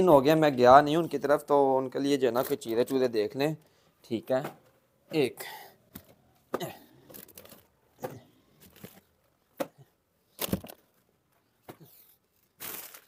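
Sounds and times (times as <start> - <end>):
snack packets rustling: 7.0 - 7.8, 11.8 - 13.0.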